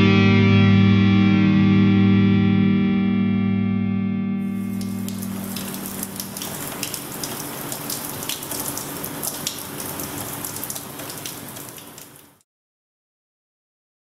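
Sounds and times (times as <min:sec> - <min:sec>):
rain patter: 0:04.4 - 0:12.4.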